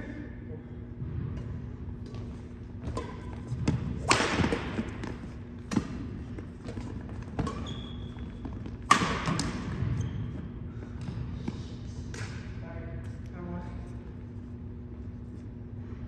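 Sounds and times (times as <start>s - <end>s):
racquets hitting shuttlecock: 2.1s - 9.9s
shoe squeak: 6.5s - 10.6s.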